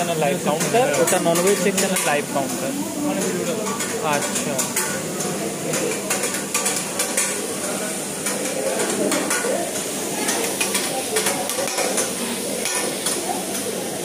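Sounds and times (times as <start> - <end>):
food sizzling on griddle: 0.0 - 14.0.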